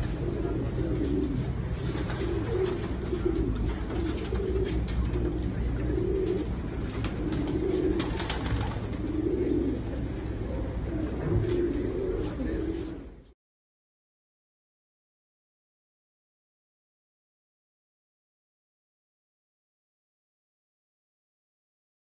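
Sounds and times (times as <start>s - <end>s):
pigeons cooing: 0.0s - 13.3s
steady low rumble: 0.0s - 13.3s.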